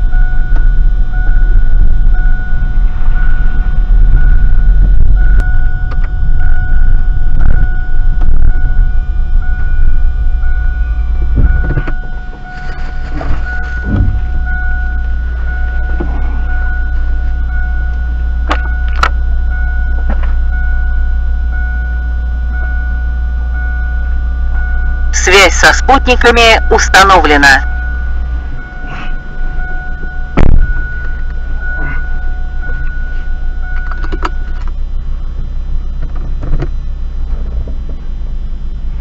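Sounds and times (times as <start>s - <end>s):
car engine and road noise: 0.0s - 39.0s.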